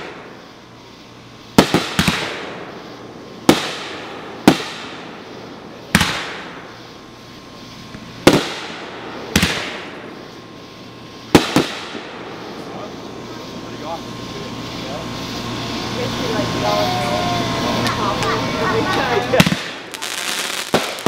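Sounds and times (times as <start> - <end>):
firework shells bursting: 1.4 - 6.9, 7.9 - 10.4, 11.2 - 12.8, 17.8 - 21.0.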